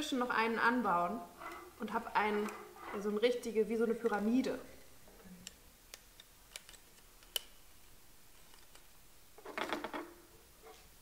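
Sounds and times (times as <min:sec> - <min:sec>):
plastic straws and wire clicking: 0:05.3 - 0:07.6, 0:08.3 - 0:08.9.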